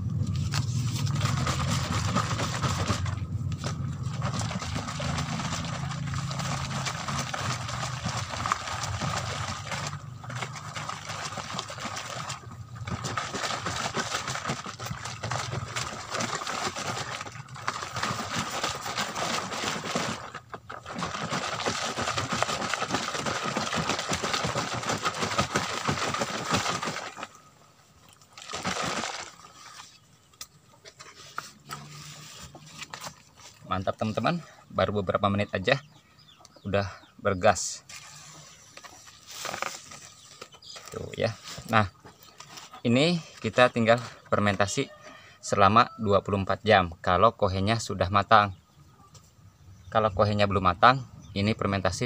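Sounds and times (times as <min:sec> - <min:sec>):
liquid sloshing in plastic can: 0:00.7 - 0:34.2.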